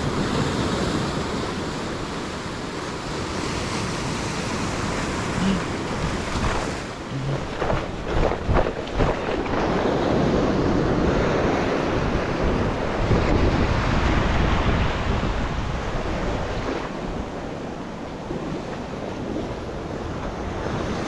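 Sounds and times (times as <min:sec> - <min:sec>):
sea surf washing over rocks: 0:00.0 - 0:21.0
wind buffeting microphone: 0:05.9 - 0:21.0.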